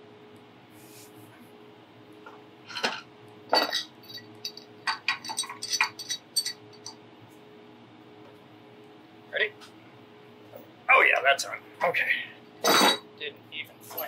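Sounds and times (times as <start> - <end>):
metal wrench clinks and knocks: 3.5 - 7.0.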